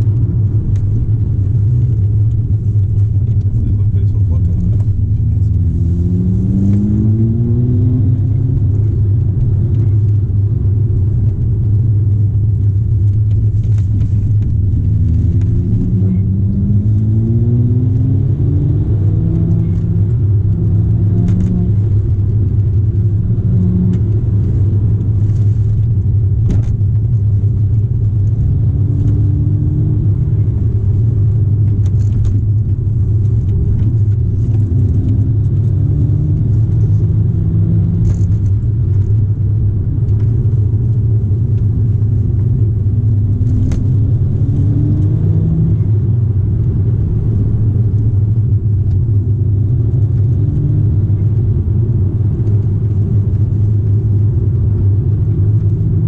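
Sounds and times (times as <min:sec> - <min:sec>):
car engine accelerating: 0:00.0 - 0:56.0
tyre road rumble: 0:00.0 - 0:56.0.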